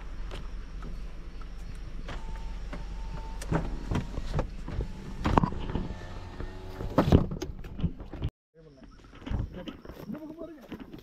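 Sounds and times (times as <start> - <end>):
vehicle low rumble: 0.0 - 8.3.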